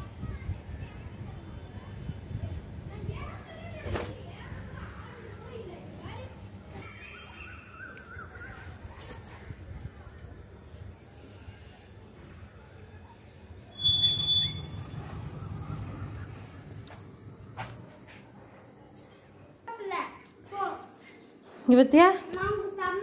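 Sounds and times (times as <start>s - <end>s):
insects chirring: 6.8s - 20.2s
sudden low noise: 14.2s - 18.4s.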